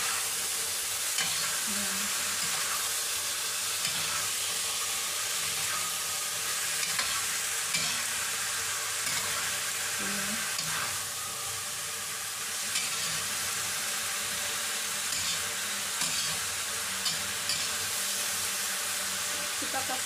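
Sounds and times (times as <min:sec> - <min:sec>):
food sizzling in a wok: 0:00.0 - 0:20.0
metal spatula scraping pan: 0:03.8 - 0:04.3, 0:06.8 - 0:08.1, 0:12.7 - 0:13.3, 0:15.1 - 0:17.9.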